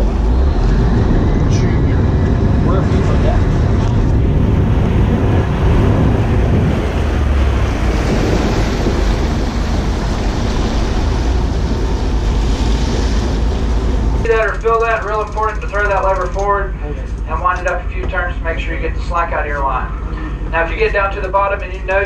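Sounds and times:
wind buffeting microphone: 0:00.0 - 0:18.9
low rumble: 0:00.0 - 0:22.0
water splashing along boat hull: 0:03.5 - 0:18.2.

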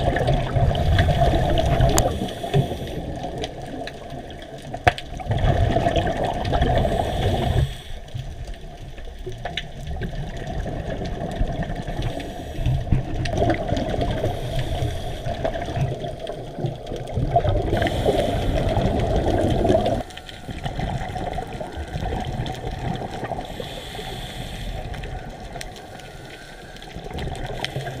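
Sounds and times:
muffled underwater water wash: 0:00.0 - 0:28.0
small clicks and pops: 0:01.0 - 0:06.8, 0:08.1 - 0:14.3.

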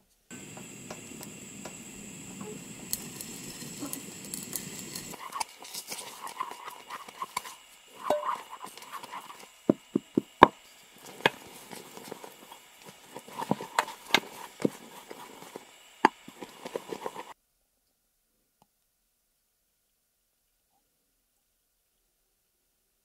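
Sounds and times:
spoon knocking against pot: 0:08.0 - 0:08.4.

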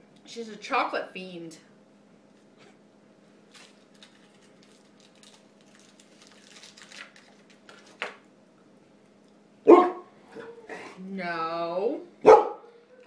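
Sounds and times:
foil wrapper crinkling: 0:03.5 - 0:08.2.

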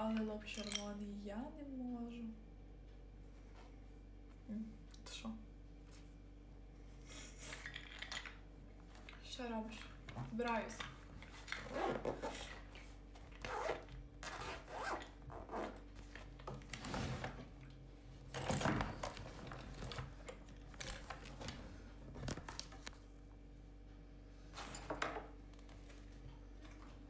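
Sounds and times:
rustling and scraping of handled objects: 0:06.9 - 0:17.6, 0:24.4 - 0:27.0.

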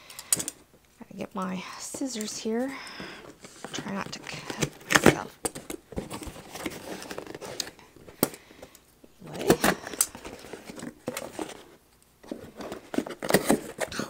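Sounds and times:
cardboard box rustling: 0:02.3 - 0:08.3, 0:09.2 - 0:14.0.

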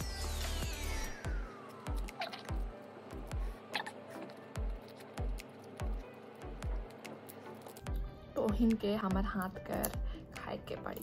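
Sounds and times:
electronic music with beat: 0:00.0 - 0:07.1.

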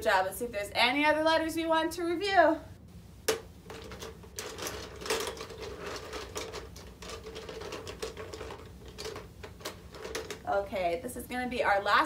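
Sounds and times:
letter pieces clicking and rattling: 0:03.7 - 0:10.5.

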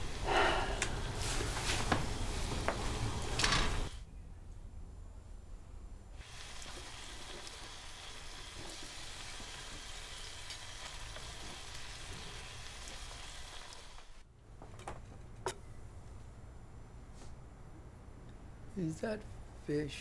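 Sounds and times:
food sizzling in a pan: 0:06.2 - 0:14.2.

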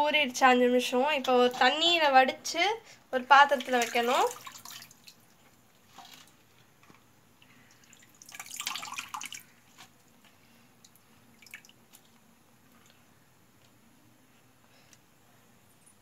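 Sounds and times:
water dripping: 0:03.4 - 0:06.4, 0:07.4 - 0:10.1, 0:10.8 - 0:13.0
water splashing: 0:03.5 - 0:06.4, 0:07.7 - 0:09.5, 0:11.3 - 0:12.1.

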